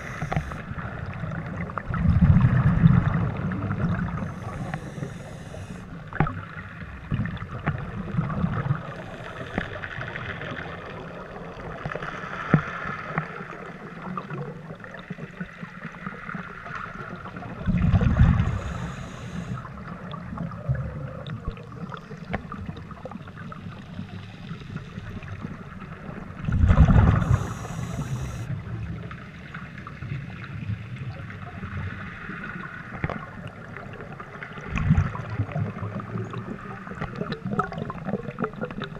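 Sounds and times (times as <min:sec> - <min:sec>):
rushes of exhaled bubbles: 0:00.0 - 0:29.1, 0:31.4 - 0:38.9
low underwater wash: 0:00.0 - 0:38.9.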